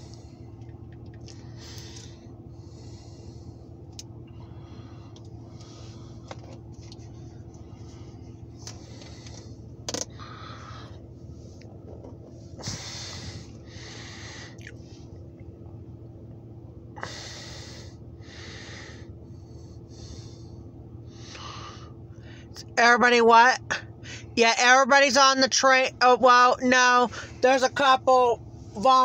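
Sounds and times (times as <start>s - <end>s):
steady low hum: 0.0s - 29.0s
breathing close to microphone: 1.3s - 3.7s, 4.3s - 6.5s, 7.2s - 11.6s, 12.5s - 14.7s, 17.0s - 22.6s.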